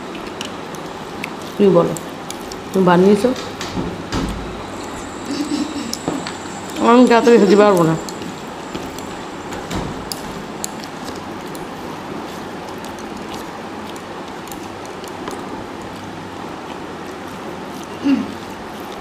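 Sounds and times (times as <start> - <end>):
mouths chewing: 0.0 - 3.3, 10.0 - 19.0
fingers mixing rice and curry: 0.0 - 3.6, 10.0 - 19.0.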